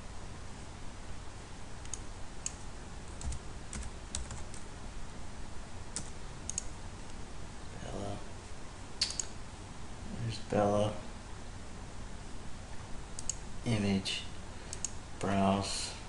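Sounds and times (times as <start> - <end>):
keyboard typing: 1.8 - 4.6.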